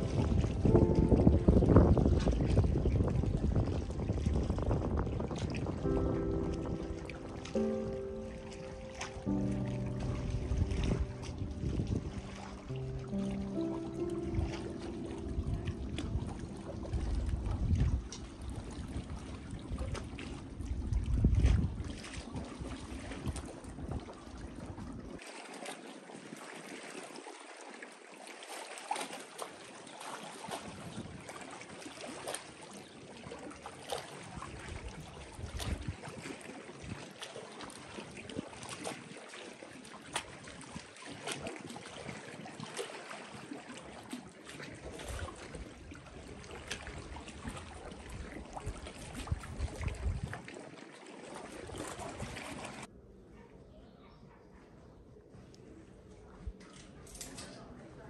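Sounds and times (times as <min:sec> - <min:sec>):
wind rumble on microphone: 0:00.0 - 0:25.2, 0:30.4 - 0:31.8, 0:33.9 - 0:50.7, 0:51.5 - 0:52.9
water lapping and splashing: 0:00.0 - 0:53.0.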